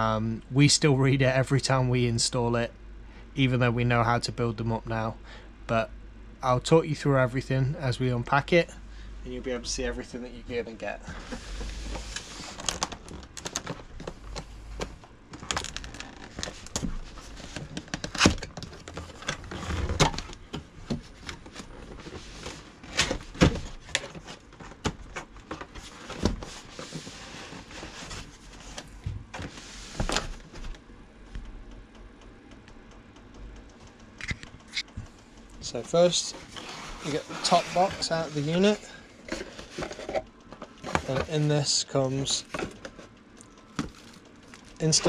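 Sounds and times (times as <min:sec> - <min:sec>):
cardboard rustling and scraping: 0:11.1 - 0:14.2, 0:20.9 - 0:24.8, 0:25.4 - 0:30.7, 0:35.7 - 0:43.1, 0:43.8 - 0:45.0.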